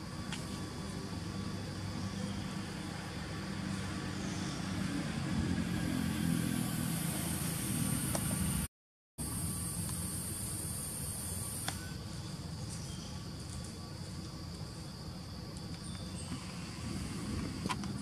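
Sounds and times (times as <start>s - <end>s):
passing vehicle engine hum: 0.0s - 8.7s
high steady hiss: 0.0s - 18.0s.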